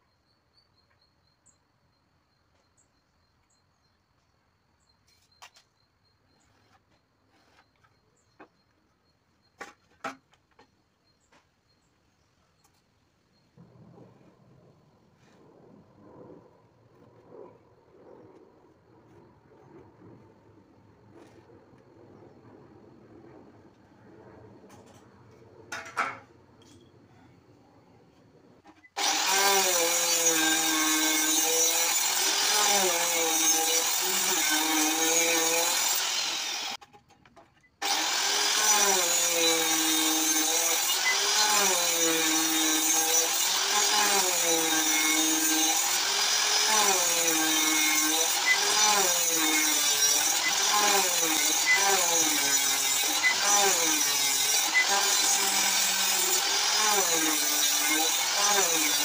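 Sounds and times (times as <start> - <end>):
circular saw cutting wood: 28.6 - 36.8, 37.8 - 59.0.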